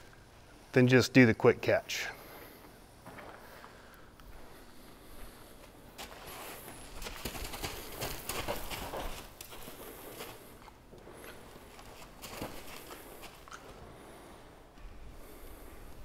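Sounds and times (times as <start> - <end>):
horse hooves on dirt: 6.0 - 13.8.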